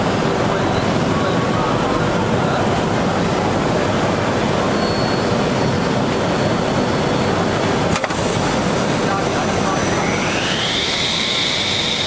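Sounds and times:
woodworking machine with circular saws: 9.0s - 12.0s.

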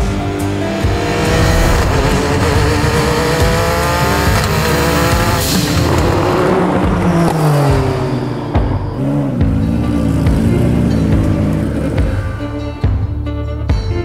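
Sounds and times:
race car accelerating: 0.0s - 12.8s
sharp burst of noise: 0.9s - 4.4s.

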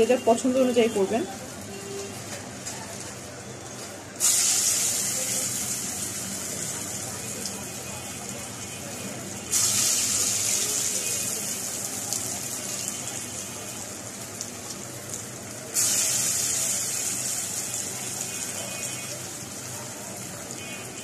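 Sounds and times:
batter sizzling in hot oil: 0.0s - 21.0s.

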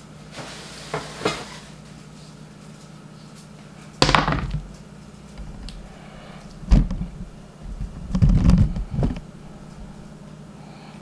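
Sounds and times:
kitchen things knocking on table: 4.0s - 4.8s.

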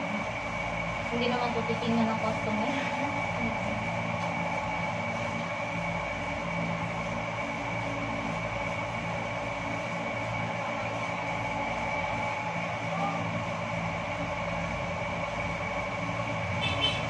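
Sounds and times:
machine hum with high whine: 0.0s - 17.0s.

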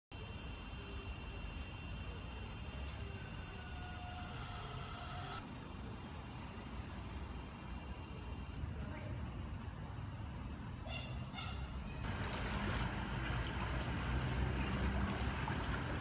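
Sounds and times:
insects chorus: 0.1s - 12.1s.

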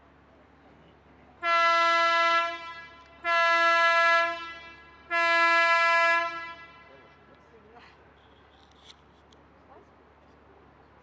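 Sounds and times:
ship's horn blasts: 1.4s - 7.2s.

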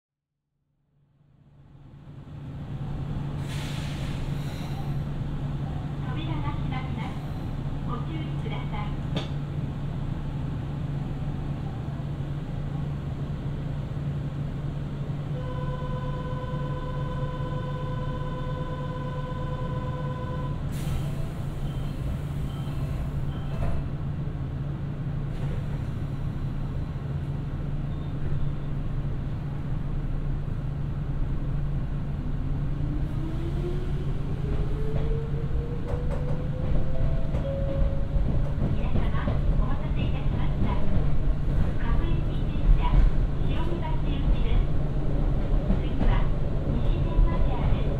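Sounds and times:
electric train equipment humming: 13.6s - 21.6s.

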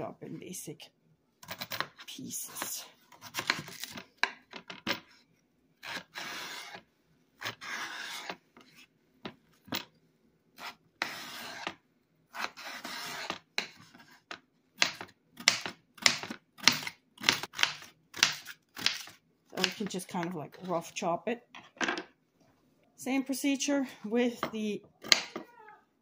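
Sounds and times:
knife slicing potato: 5.8s - 6.8s, 7.4s - 8.4s, 10.6s - 20.8s.

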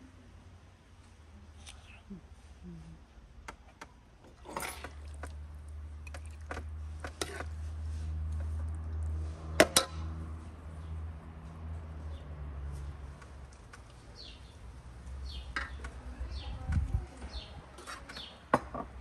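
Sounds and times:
metal spoon scraping in a pan: 7.0s - 8.3s.

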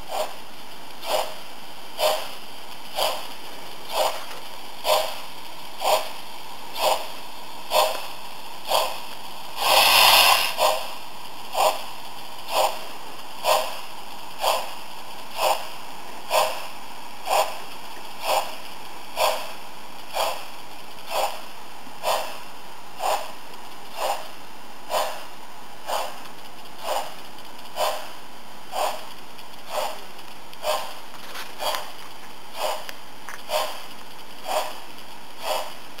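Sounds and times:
loud steam hiss: 0.0s - 20.4s
constant steam hiss: 0.0s - 36.0s
model steam locomotive chuffs: 0.0s - 36.0s.

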